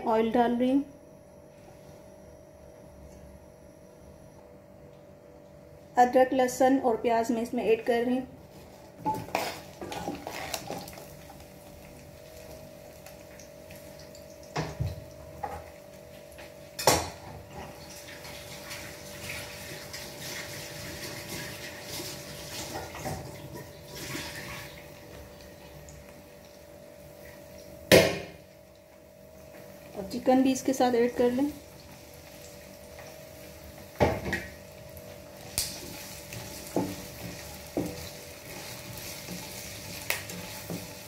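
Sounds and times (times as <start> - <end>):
faint steady hum: 0.0 - 19.1
food sizzling in oil: 9.1 - 17.2, 17.8 - 28.8, 29.4 - 41.0.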